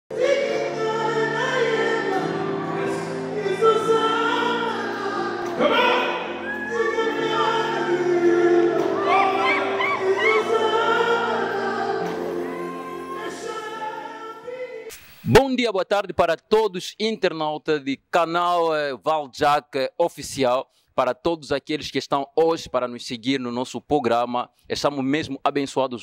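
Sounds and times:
choir singing over held chords: 0.1 - 14.9.

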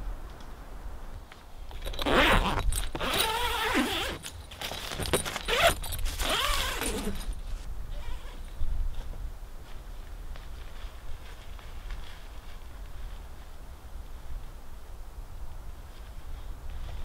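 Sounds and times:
zipper pulled open: 1.8 - 8.4.

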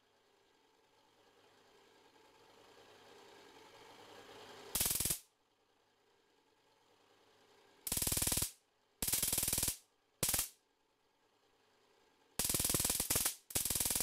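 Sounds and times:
crackling buzz of electric sparks: 4.8 - 5.3, 7.9 - 10.6, 12.4 - 14.0.

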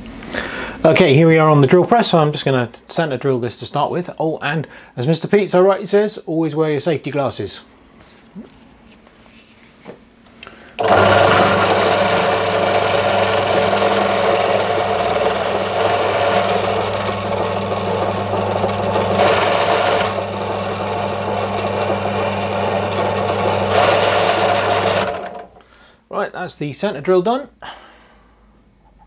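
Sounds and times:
drill cutting into aluminium: 10.8 - 25.5
drill press motor humming: 10.8 - 25.6.

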